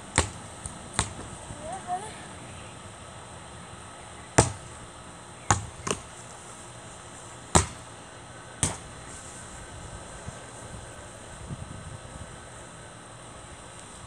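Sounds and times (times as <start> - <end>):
basketball bouncing on concrete: 0.1 - 1.4, 4.4 - 4.7, 5.5 - 6.1, 7.5 - 7.8, 8.6 - 8.8.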